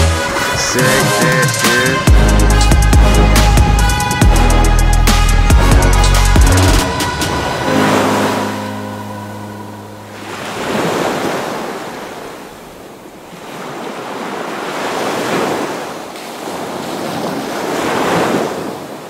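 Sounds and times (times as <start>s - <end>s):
small waves washing: 6.8s - 19.0s.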